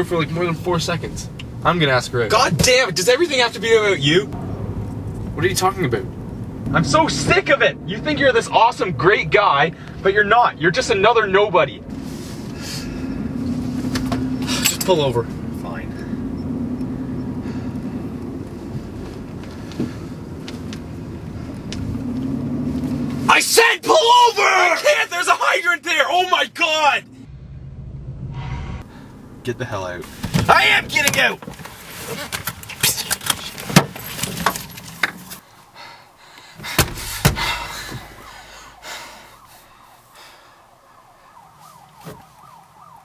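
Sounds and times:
car engine hum: 0:00.0 - 0:40.2
road noise: 0:00.0 - 0:43.0
car door slamming: 0:36.6 - 0:38.3.

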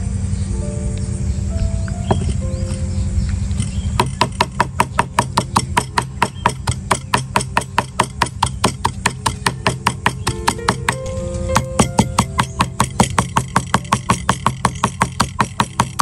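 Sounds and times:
knife chopping on cutting board: 0:04.0 - 0:16.0
background music: 0:09.4 - 0:14.1.

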